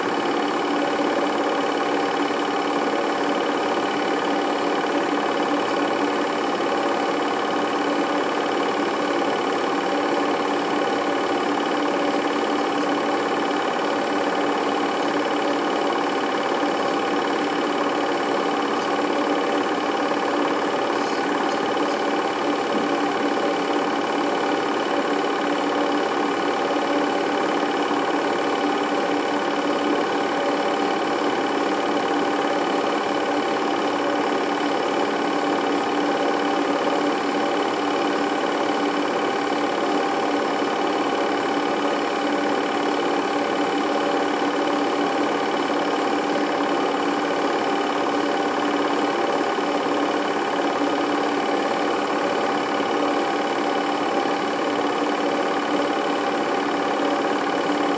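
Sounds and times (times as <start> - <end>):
film projector whirring: 0.0 - 57.9.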